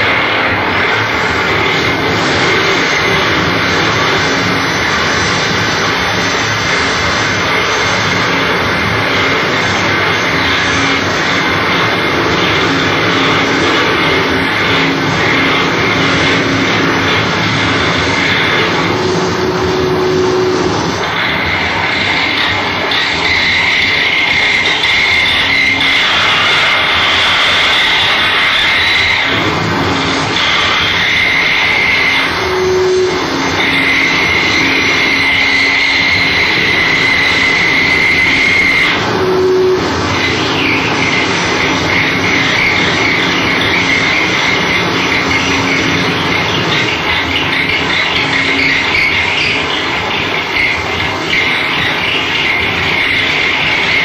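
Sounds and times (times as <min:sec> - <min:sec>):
higher held tone: 0:00.0 - 0:27.4, 0:29.1 - 0:46.8
harsh noise roar: 0:00.0 - 0:54.0
low hum: 0:00.0 - 0:54.0
steady high whine: 0:00.0 - 0:54.0
faint held tone: 0:08.7 - 0:22.4, 0:31.6 - 0:44.9.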